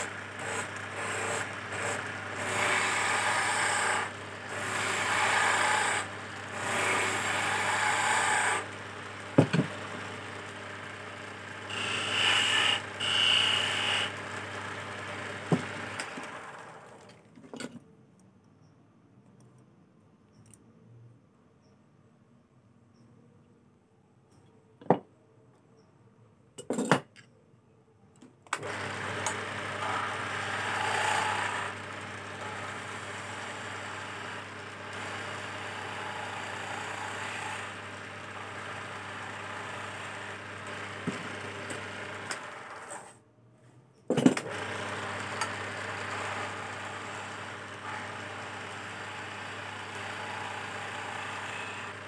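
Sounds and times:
lathe motor humming: 0.0s - 17.0s, 28.6s - 42.8s, 44.5s - 52.0s
chisel scraping wood: 11.7s - 14.1s.

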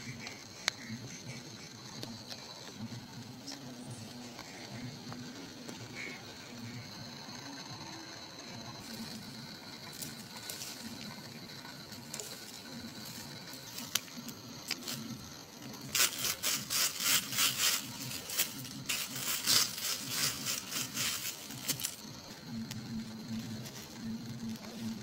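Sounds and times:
dry twigs and leaves crackling: 8.8s - 25.0s
faint ticks: 21.5s - 25.0s.

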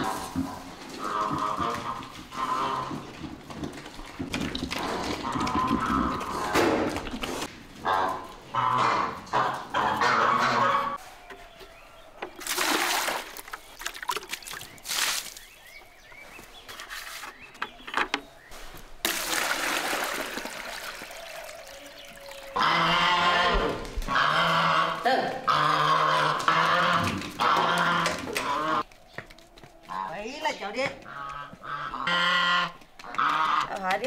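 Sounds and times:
water pouring into bucket: 12.4s - 15.4s, 19.0s - 22.8s.

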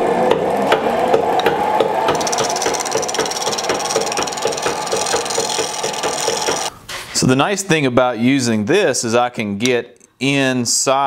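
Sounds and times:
lathe drive knocking: 2.1s - 6.7s
tool scraping wood: 2.1s - 6.7s.

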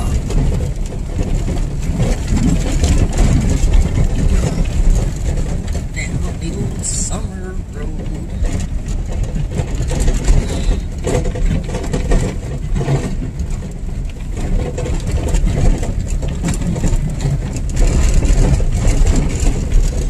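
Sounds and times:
engine and tyre rumble: 0.0s - 20.0s
vehicle knocks and rattles: 0.0s - 20.0s.

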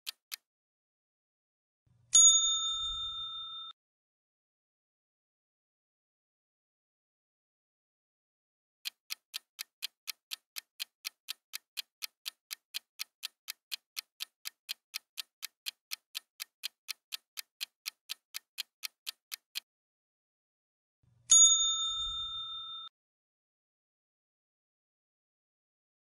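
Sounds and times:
timer ticking: 0.0s - 0.5s, 8.8s - 19.7s.

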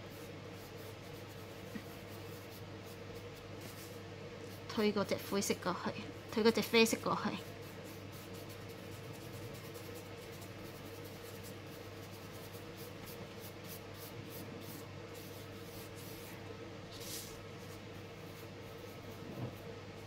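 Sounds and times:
fingertips rubbing on paper: 6.4s - 16.3s.

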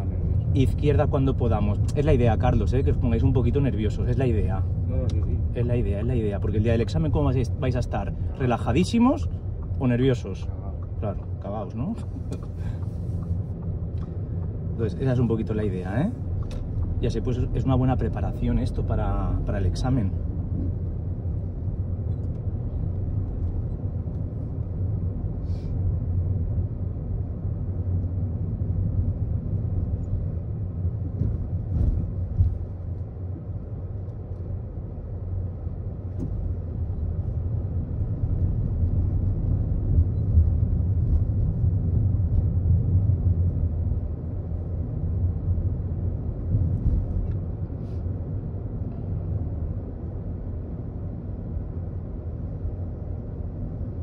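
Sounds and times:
car driving rumble: 0.0s - 54.0s.

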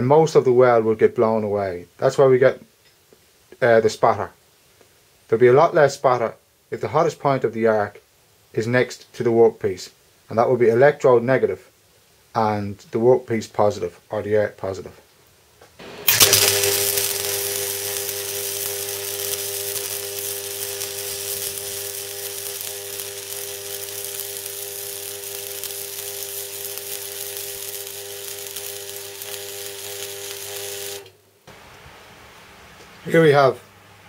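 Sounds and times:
welding arc burning: 15.8s - 31.8s
welder steady hum: 15.8s - 34.0s.

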